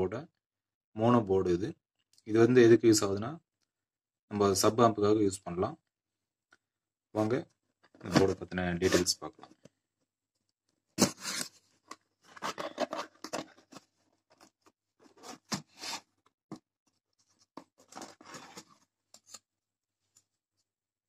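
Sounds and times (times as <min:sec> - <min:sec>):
cardboard rubbing and scraping: 0:15.1 - 0:16.1.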